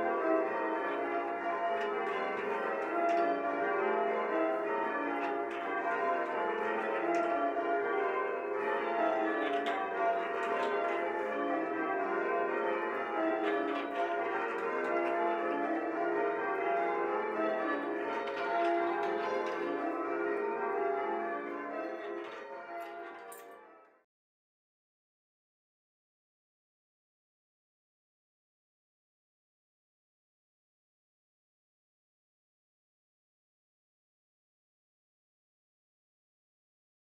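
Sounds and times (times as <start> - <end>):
church bells ringing: 0.0 - 24.0.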